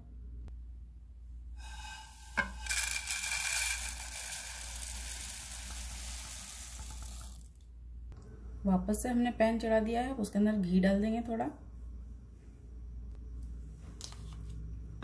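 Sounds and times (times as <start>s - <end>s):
puffed rice pouring into bowl: 1.6s - 7.6s.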